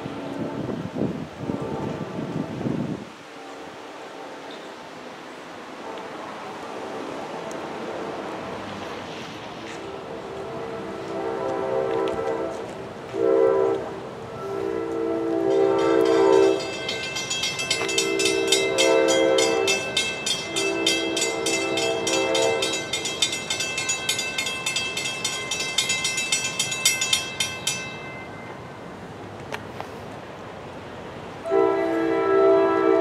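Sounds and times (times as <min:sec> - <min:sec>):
train horn blasts: 0:00.0 - 0:02.4, 0:09.9 - 0:23.2, 0:31.4 - 0:33.0
bell ringing rapidly: 0:15.7 - 0:28.4.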